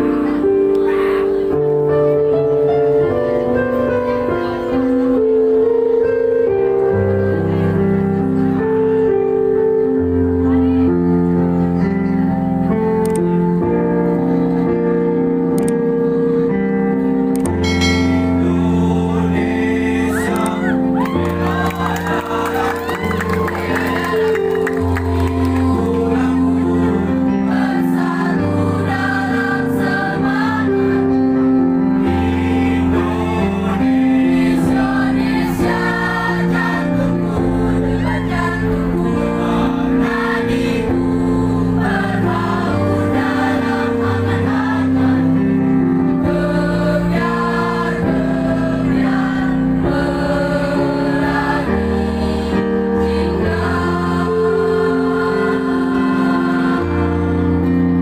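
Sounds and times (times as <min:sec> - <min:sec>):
choir singing chords: 0:12.6 - 0:58.0.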